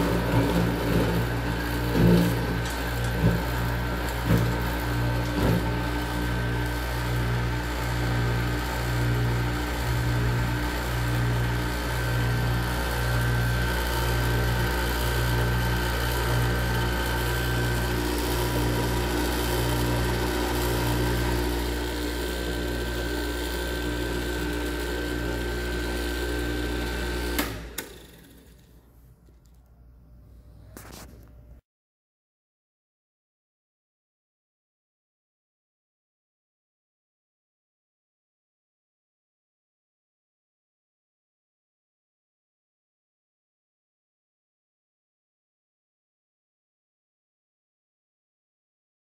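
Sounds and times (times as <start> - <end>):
electric motor humming: 0.0 - 28.3.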